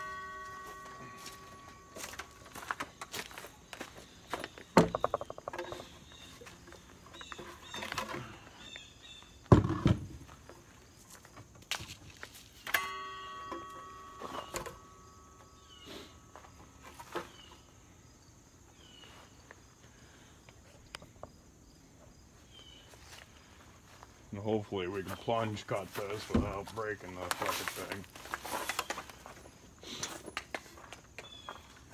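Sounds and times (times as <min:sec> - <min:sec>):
steady ringing tone: 0:00.0 - 0:04.1, 0:12.7 - 0:17.8
wooden boards knocking: 0:04.7 - 0:05.9.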